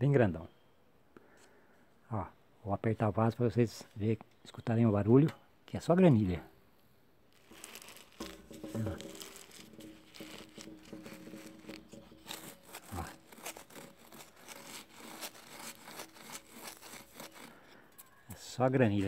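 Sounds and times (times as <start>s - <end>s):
grit crunching: 7.3s - 19.0s
plastic pot flexing: 7.3s - 19.0s.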